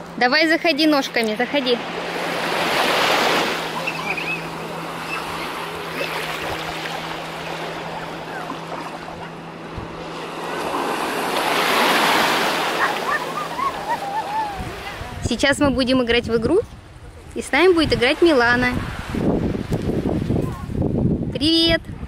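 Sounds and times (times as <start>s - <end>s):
small waves washing on shore: 0.8s - 15.3s.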